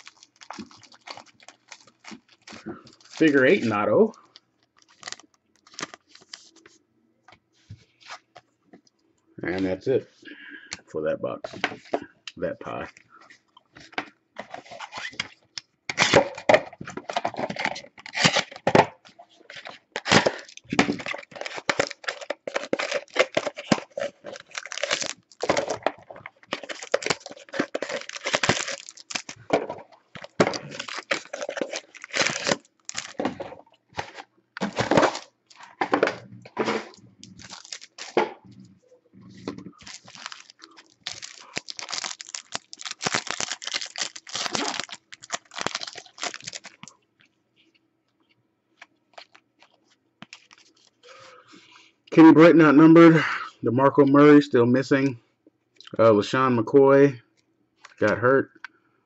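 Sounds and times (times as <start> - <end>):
card pack wrapper tearing and crinkling: 0.0 - 4.2, 4.8 - 6.6, 15.9 - 18.9, 19.5 - 36.0, 36.9 - 38.2, 39.6 - 46.9, 49.1 - 49.4, 50.2 - 51.2.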